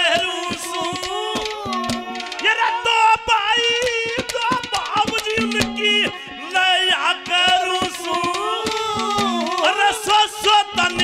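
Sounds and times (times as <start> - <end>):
instrumental accompaniment: 0.0 - 11.0
man singing folk song: 0.0 - 11.0
quick drum strokes: 0.5 - 2.5, 7.3 - 9.8.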